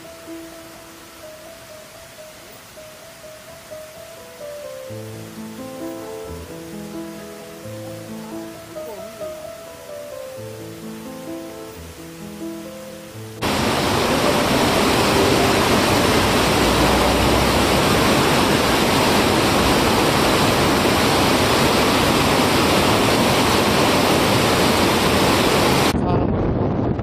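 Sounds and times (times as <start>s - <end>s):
water rushing over rocks: 0.0s - 26.0s
wind buffeting microphone: 15.4s - 27.0s.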